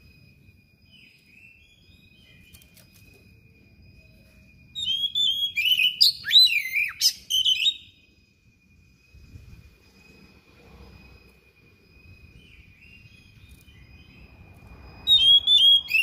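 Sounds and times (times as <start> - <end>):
bird singing varied whistles: 0.8 - 8.4, 12.0 - 16.0.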